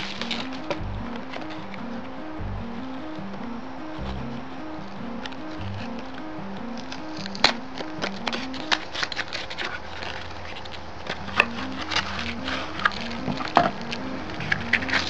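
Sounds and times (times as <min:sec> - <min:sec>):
background music melody: 0:00.0 - 0:15.0
plastic packaging crackling: 0:07.2 - 0:15.0.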